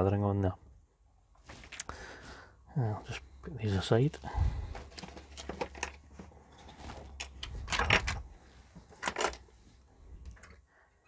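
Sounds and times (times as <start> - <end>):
metal parts clicking and knocking: 4.9 - 6.0, 7.1 - 8.3, 8.9 - 9.5.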